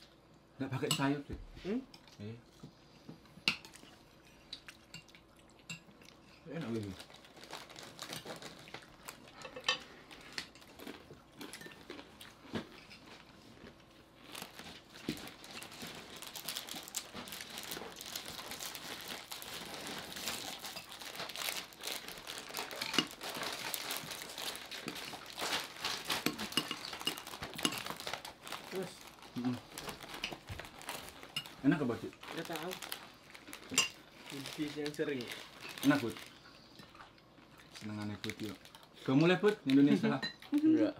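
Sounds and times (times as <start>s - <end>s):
plastic packaging crinkling: 6.5s - 9.4s, 13.0s - 36.4s, 37.7s - 40.7s
spoons clinking on plates: 26.2s - 27.9s, 33.7s - 34.0s.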